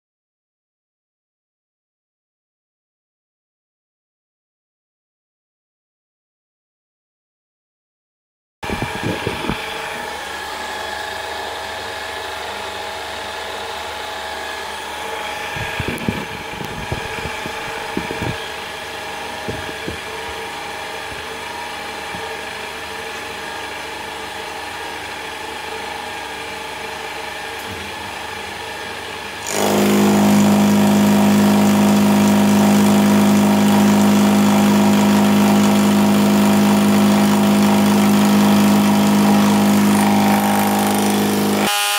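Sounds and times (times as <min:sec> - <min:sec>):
cutter drone in heavy cut: 0:08.6 - 0:41.9
milling machine hum: 0:08.6 - 0:41.9.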